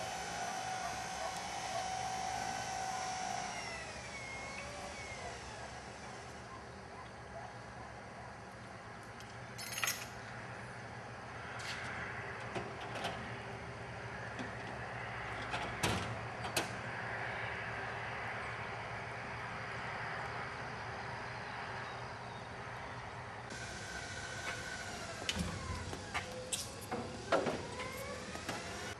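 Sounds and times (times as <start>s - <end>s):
aircraft tug engine running: 0.0s - 6.5s, 23.5s - 28.9s.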